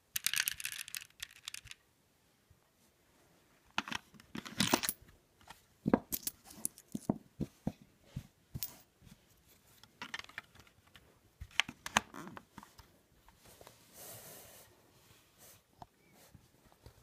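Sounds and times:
plastic clicks and rattles: 0.1 - 1.8.

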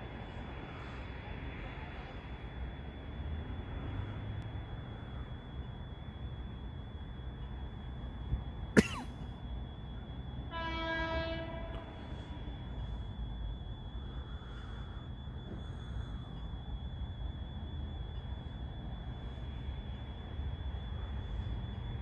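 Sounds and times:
faint high whine: 0.0 - 22.0
train horn: 10.5 - 12.5.

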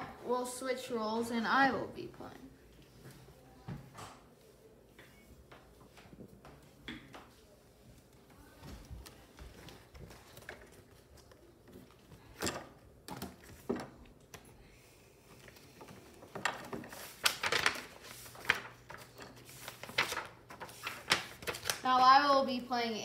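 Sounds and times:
paper rustling: 15.2 - 22.0.

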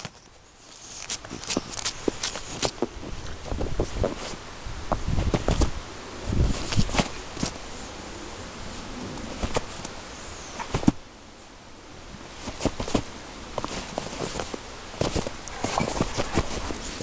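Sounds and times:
dog digging in snow: 0.1 - 4.4, 12.3 - 17.0.

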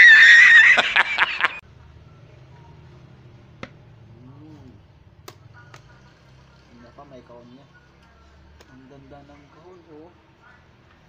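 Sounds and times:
man laughing heartily: 0.0 - 1.6.

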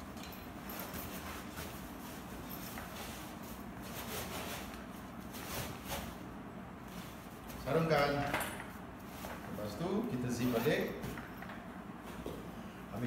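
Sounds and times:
fabric cover rustling and scraping: 0.6 - 7.9.

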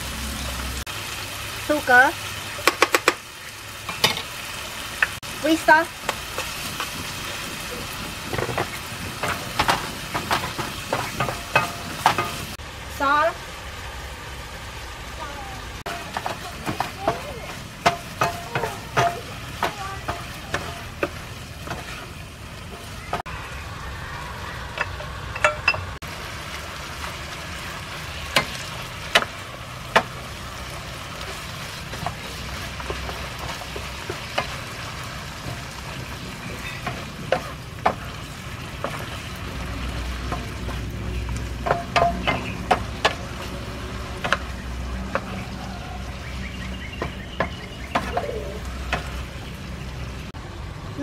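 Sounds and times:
food sizzling in a frying pan: 0.0 - 50.4
spatula knocking against pan: 41.6 - 43.3.

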